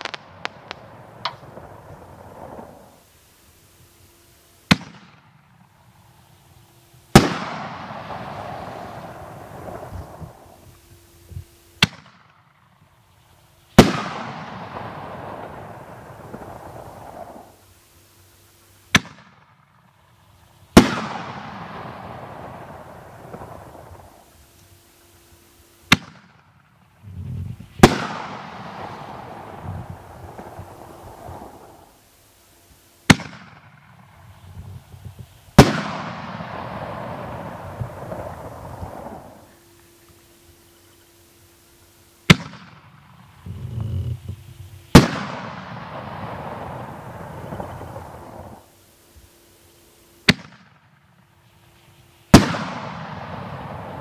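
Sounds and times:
firework shell bursting: 0.0s - 3.1s.

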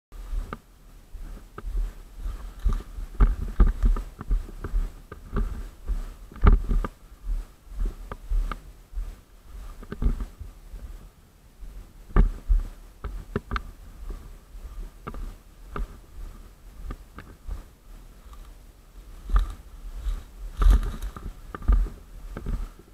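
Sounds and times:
dry brush rustling: 0.2s - 22.9s
footsteps on dry leaves: 19.1s - 22.7s.

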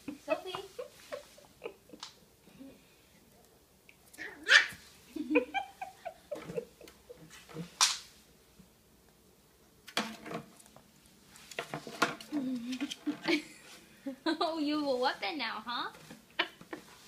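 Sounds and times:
puppy yipping and barking: 4.2s - 4.8s.

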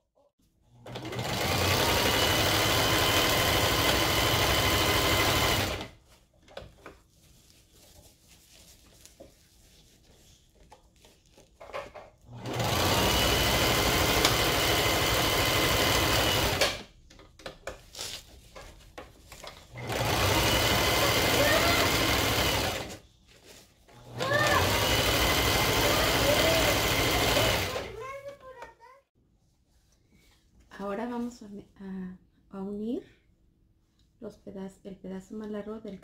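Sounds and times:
electric sewing machine stitching: 0.8s - 6.0s, 12.3s - 16.9s, 19.7s - 23.0s, 23.9s - 28.0s.

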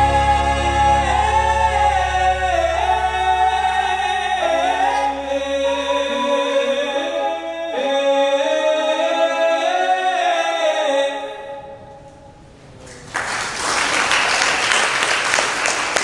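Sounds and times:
choral singing: 0.0s - 11.9s
applause: 12.9s - 16.0s.

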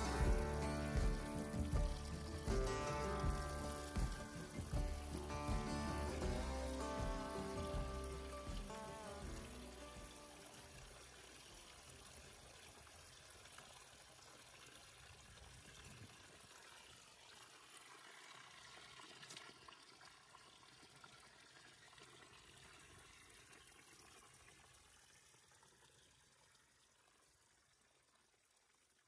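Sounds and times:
water trickling over trough rim: 0.0s - 29.0s.

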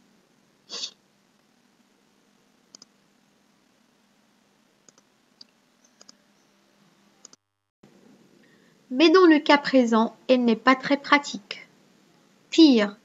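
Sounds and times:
computer mouse clicks: 2.7s - 3.0s, 4.8s - 6.2s.

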